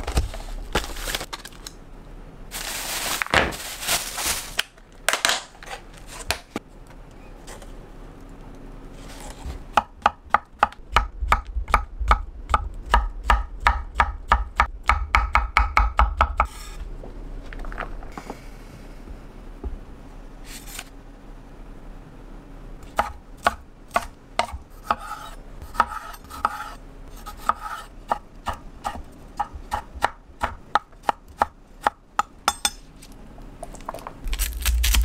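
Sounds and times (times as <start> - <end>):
plastic bag rustling: 0.0 - 1.7, 2.5 - 6.2
knife chopping on wooden board: 23.0 - 26.8.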